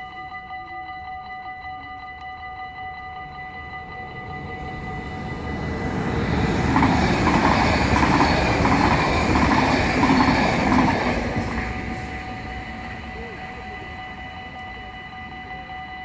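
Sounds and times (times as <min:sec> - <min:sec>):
crossing warning bell ringing: 0:00.0 - 0:16.0
train wheels clattering: 0:04.6 - 0:13.0.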